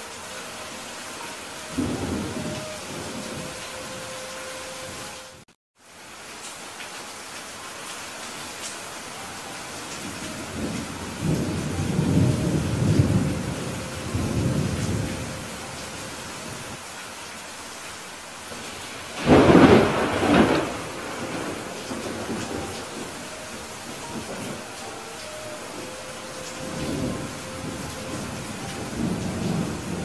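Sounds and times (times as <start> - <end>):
steady rain falling: 0.0 - 30.0
thunder rumbling: 1.2 - 4.2, 10.0 - 16.8, 18.5 - 30.0
sharp thunderclap: 19.2 - 23.1.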